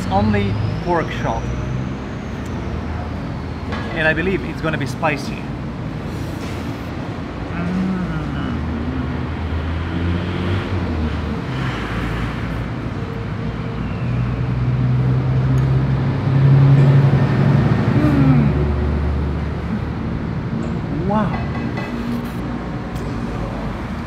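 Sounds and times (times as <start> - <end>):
road traffic: 0.0 - 24.0
vehicle engine passing: 7.6 - 24.0.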